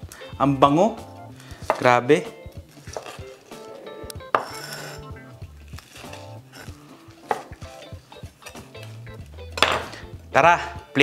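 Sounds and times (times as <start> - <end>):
knife slicing fried meat: 2.7 - 9.0
knife knocking on wooden board: 4.3 - 4.5, 7.2 - 7.7, 9.6 - 10.0.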